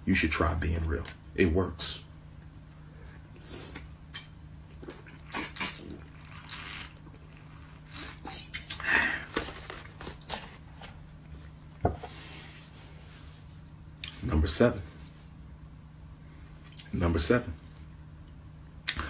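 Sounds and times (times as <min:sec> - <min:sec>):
man gulping a drink: 0:03.8 - 0:09.5.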